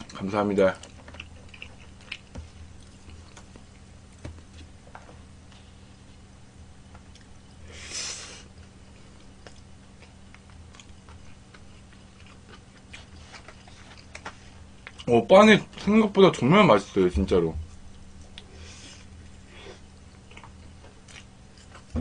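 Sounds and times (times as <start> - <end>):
chewing: 0.0 - 5.6, 8.9 - 15.1, 19.8 - 22.0
faint low hum: 0.0 - 22.0.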